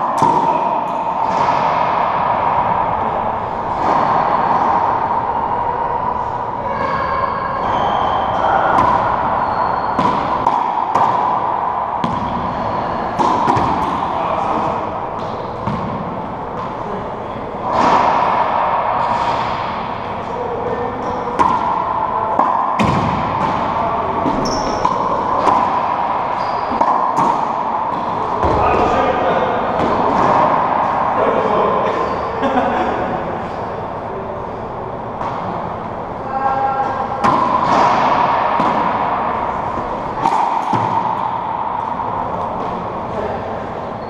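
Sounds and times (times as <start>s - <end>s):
racquetball ball smacks echoing: 9.8s - 16.7s, 21.0s - 32.1s, 37.2s - 43.0s
sneakers squeaking on hardwood: 24.2s - 25.1s, 26.3s - 26.9s.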